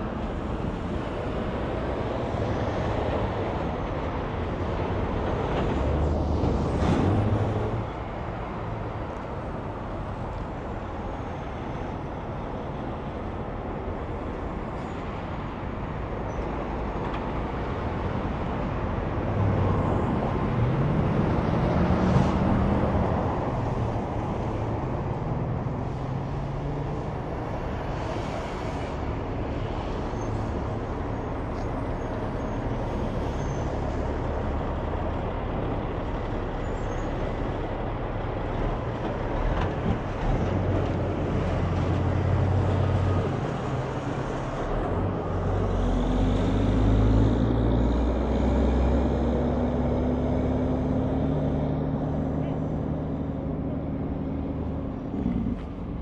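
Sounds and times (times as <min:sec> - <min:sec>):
highway traffic: 0:00.0 - 0:56.0
vehicle engine passing by: 0:41.4 - 0:56.0.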